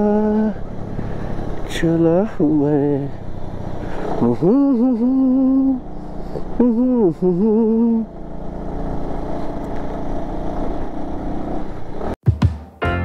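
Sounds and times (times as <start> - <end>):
man singing long held notes: 0.0 - 0.9, 1.6 - 3.4, 4.0 - 8.2
motorcycle engine running: 0.0 - 12.2
road noise: 0.0 - 12.2.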